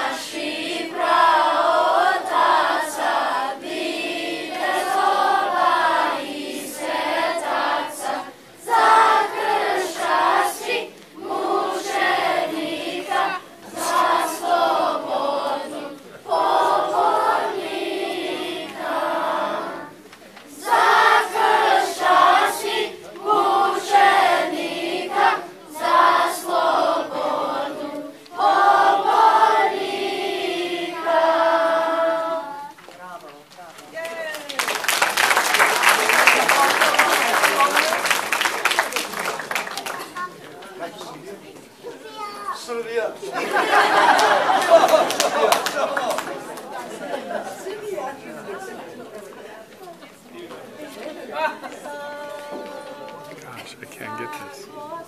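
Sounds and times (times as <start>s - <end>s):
children's choir singing: 0.0s - 32.8s, 43.2s - 48.8s, 51.0s - 55.0s.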